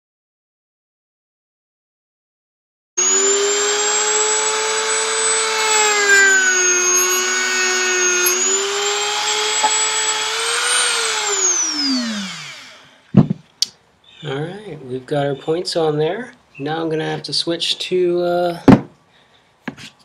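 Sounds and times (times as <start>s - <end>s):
rotary tool grinding wood: 3.0s - 13.0s.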